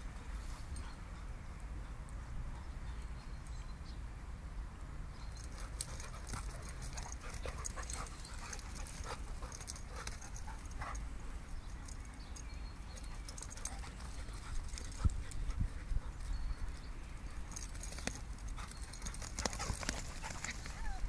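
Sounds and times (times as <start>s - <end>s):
dogs scuffling: 17.4s - 21.0s.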